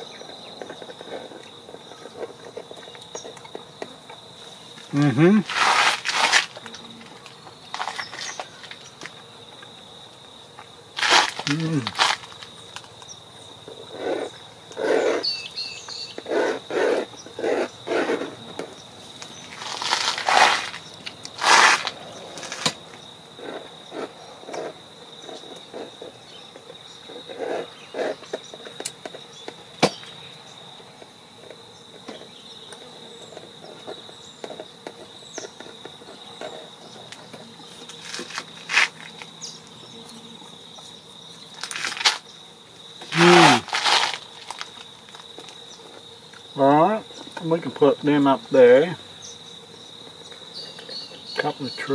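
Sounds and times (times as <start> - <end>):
insects trilling: 0.0 - 51.9
pencil scratching strokes: 16.3 - 18.4.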